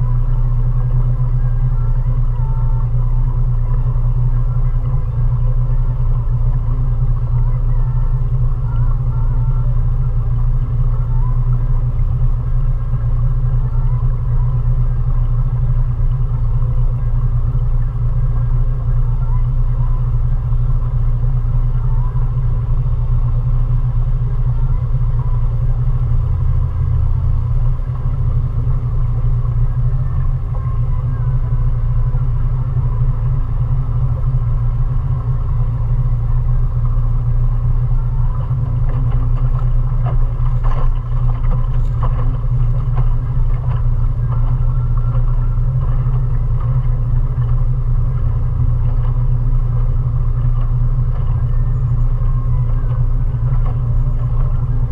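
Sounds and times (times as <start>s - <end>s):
faint steady hum: 0.0s - 54.9s
outboard motor droning: 0.0s - 54.9s.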